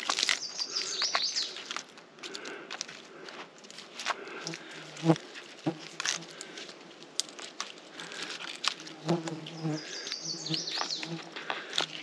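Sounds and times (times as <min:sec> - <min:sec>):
flying insects buzzing: 0:08.9 - 0:11.8.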